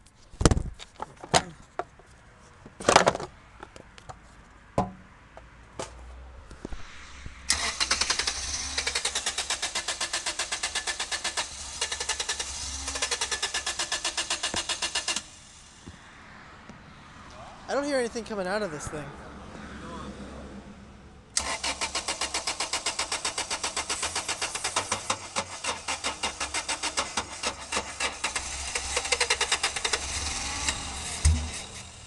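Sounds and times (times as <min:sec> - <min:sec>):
knocks and clunks: 0:00.4 - 0:02.1, 0:02.7 - 0:06.0, 0:31.1 - 0:31.8
car engine cranking by starter motor: 0:07.5 - 0:15.8, 0:21.3 - 0:32.0.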